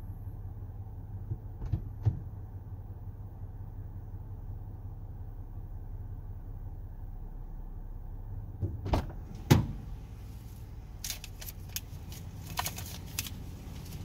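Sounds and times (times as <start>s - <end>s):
car engine idling: 0.0s - 14.0s
loud thump: 8.6s - 9.9s.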